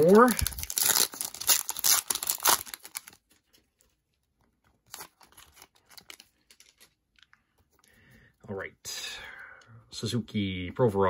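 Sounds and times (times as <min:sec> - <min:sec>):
foil wrapper crinkling: 0:00.0 - 0:04.0, 0:04.7 - 0:07.0
cards rustling: 0:00.0 - 0:07.6.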